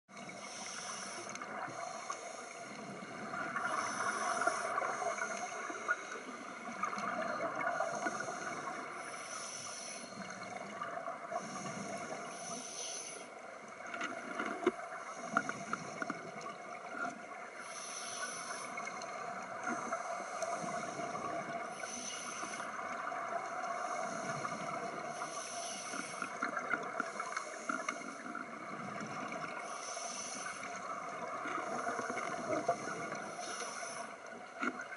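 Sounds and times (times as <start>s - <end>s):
regulator inhale hiss: 0.2s - 10.7s, 11.3s - 13.5s, 15.0s - 16.4s, 17.5s - 34.6s
faint clicks and knocks: 13.7s - 17.3s.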